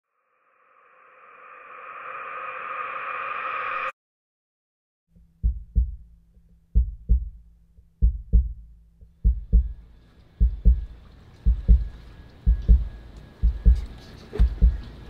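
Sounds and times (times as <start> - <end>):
swelling noise: 0.1 - 4.0
heartbeat thumps: 5.2 - 6.1, 6.7 - 9.8, 10.4 - 14.9.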